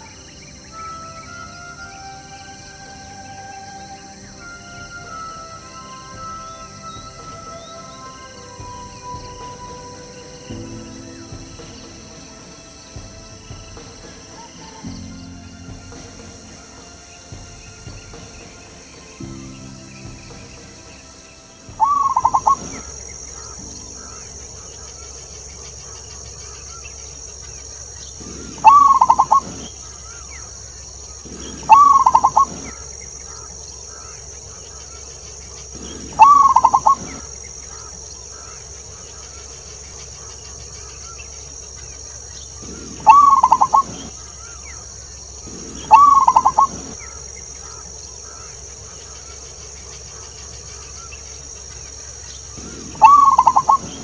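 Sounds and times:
high insect hiss: 0.0 - 54.0
dove cooing: 21.8 - 25.5, 28.2 - 30.3, 31.2 - 34.1, 35.7 - 38.6, 42.6 - 44.8, 45.4 - 49.2, 52.5 - 54.0.

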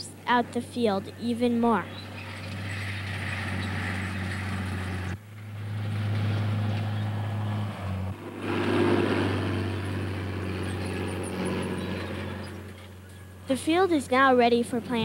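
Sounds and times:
tractor engine droning: 0.0 - 15.0.

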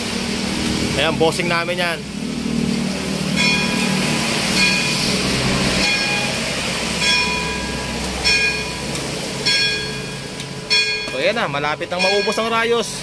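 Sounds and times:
church bell tolling: 3.4 - 5.0, 5.8 - 11.2, 11.9 - 12.7.

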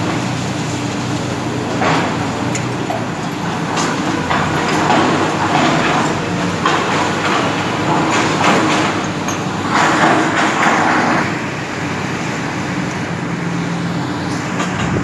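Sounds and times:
excavator diesel engines running: 0.0 - 15.0.

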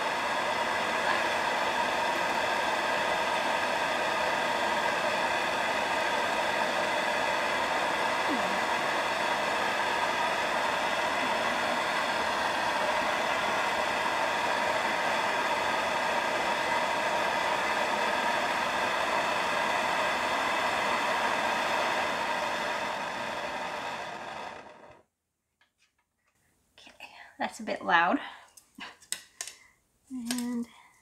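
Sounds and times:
torch flame hissing: 0.0 - 24.8.

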